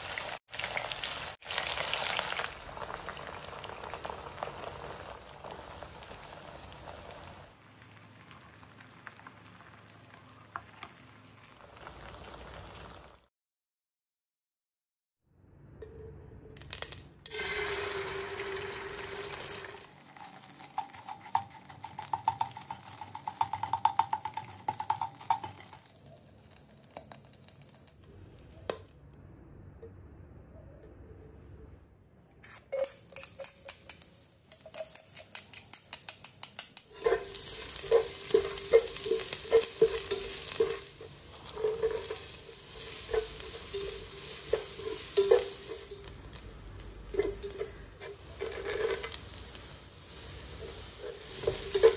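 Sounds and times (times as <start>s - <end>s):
onion sizzling in oil: 0.0s - 13.3s, 16.6s - 27.9s, 36.5s - 51.9s
spatula scraping and tapping pan: 20.2s - 27.8s, 32.8s - 51.9s.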